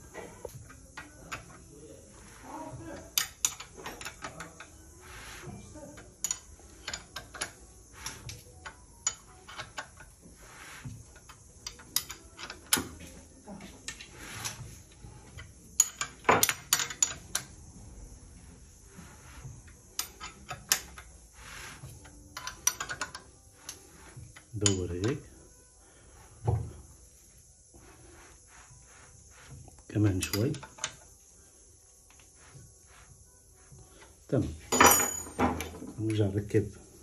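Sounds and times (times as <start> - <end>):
metallic clicks of engine turned by hand: 22.0 - 23.8.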